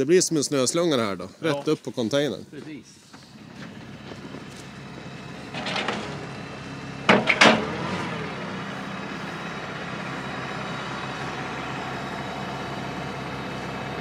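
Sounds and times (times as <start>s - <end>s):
tractor engine running: 3.1s - 14.0s.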